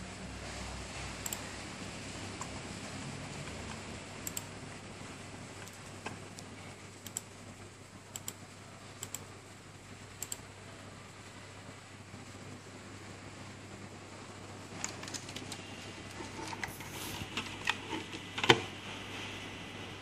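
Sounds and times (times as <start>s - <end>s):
computer mouse buttons clicking: 1.2s - 1.4s, 4.2s - 4.5s, 7.0s - 7.3s, 8.1s - 8.4s, 9.0s - 9.3s, 10.2s - 10.4s.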